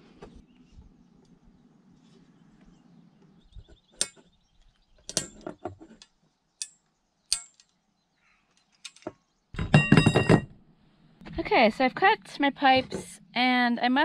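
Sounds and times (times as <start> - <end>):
metallic clicks and knocks: 5.1 - 7.7.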